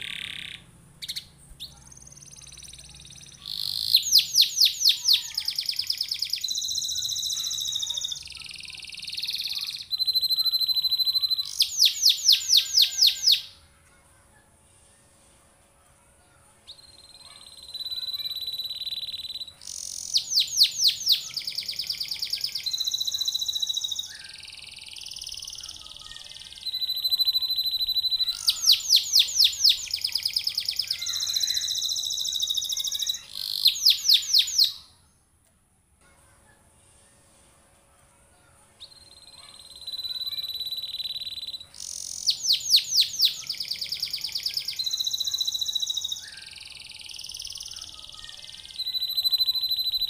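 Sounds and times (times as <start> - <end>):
canary singing: 0.0 - 13.6, 16.7 - 35.1, 38.8 - 50.0.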